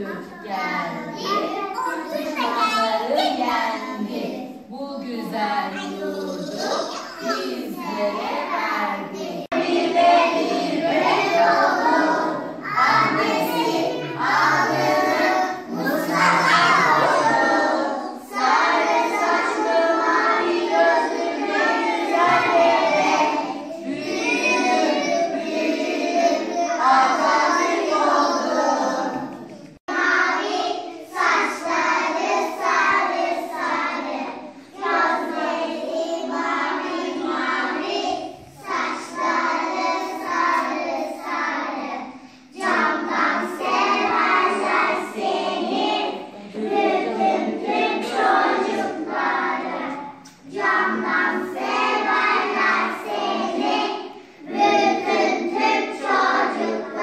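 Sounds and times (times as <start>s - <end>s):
children's choir singing: 0.0s - 57.0s.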